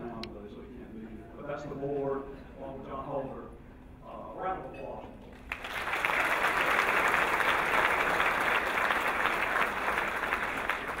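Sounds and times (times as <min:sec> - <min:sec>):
audience applauding: 0:05.5 - 0:11.0.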